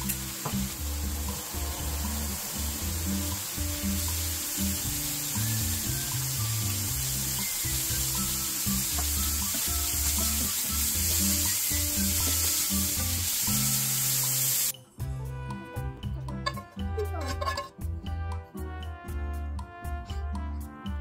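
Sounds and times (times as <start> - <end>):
meat sizzling in a pan: 0.0 - 14.7
background music with bass line: 0.0 - 21.0.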